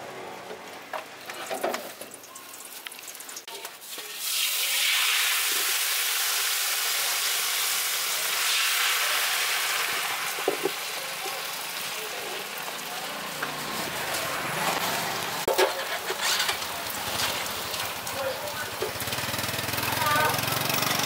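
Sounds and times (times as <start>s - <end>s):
batter sizzling in hot wok: 1.2s - 20.9s.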